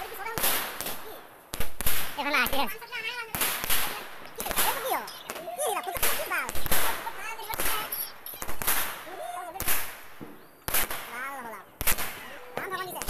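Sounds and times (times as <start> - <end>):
fireworks banging: 0.0 - 13.0
fireworks crackling: 0.0 - 13.0.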